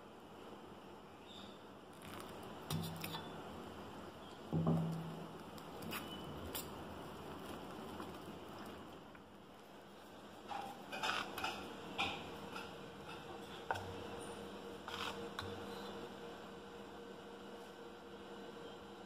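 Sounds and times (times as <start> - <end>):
steady low hum: 0.0 - 19.0
spoon scraping metal bowl: 14.9 - 15.6.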